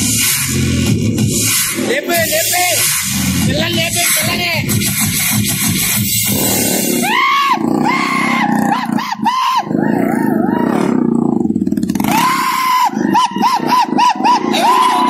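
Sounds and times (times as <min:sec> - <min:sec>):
motorcycle engine revving hard: 0:00.0 - 0:15.0.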